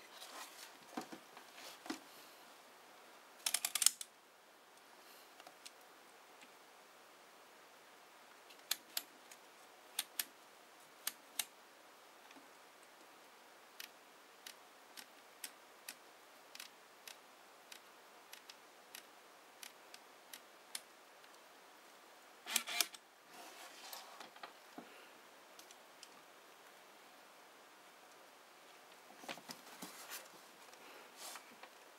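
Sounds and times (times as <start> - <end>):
handling rustle: 0.0 - 2.1, 29.2 - 31.7.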